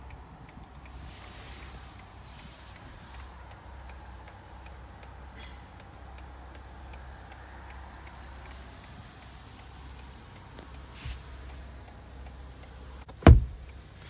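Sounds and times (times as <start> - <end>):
engine idling hum: 0.0 - 14.0
hazard light flasher ticking: 1.6 - 14.0.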